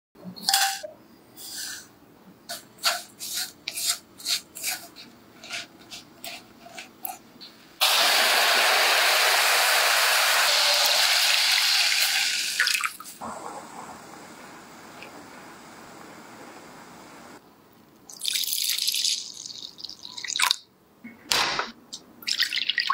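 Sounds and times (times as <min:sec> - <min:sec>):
spatula scraping a wok: 0:01.4 - 0:01.9, 0:02.5 - 0:07.2
hot caramel hissing: 0:07.8 - 0:12.6.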